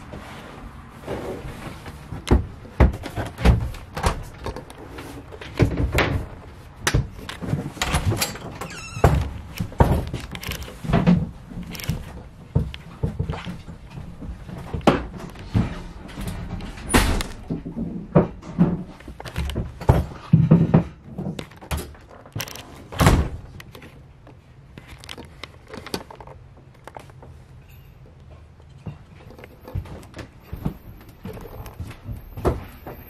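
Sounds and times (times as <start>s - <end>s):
knocks and thumps: 1.8s - 4.7s, 5.4s - 23.5s.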